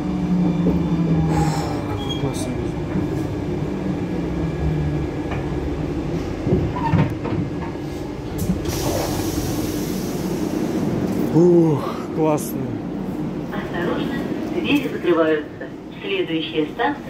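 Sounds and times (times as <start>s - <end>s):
metro train running slowly: 0.0s - 17.0s.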